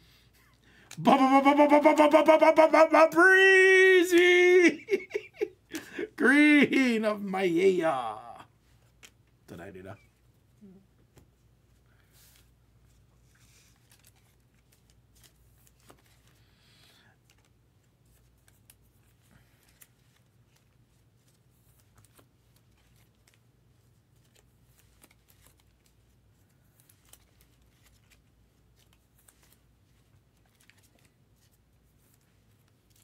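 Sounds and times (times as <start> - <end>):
trading cards clicking and rustling: 3.7 - 6.1, 24.0 - 33.0.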